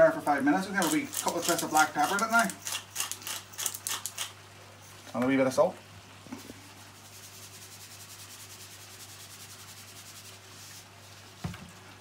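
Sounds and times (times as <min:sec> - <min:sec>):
salt mill grinding: 0:00.5 - 0:04.4.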